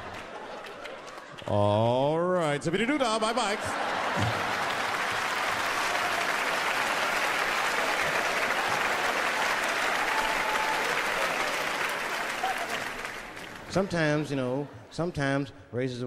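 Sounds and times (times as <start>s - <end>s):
audience applauding: 0.0s - 1.7s, 3.2s - 14.2s.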